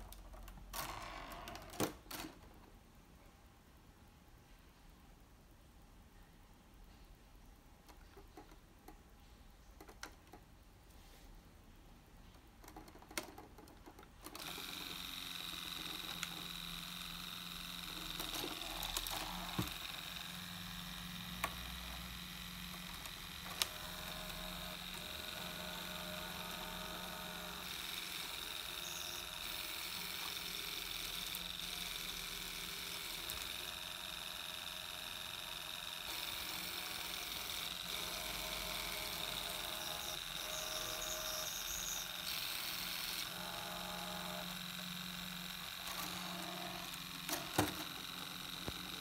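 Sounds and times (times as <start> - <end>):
small electric motors whirring: 14.2 - 49.0.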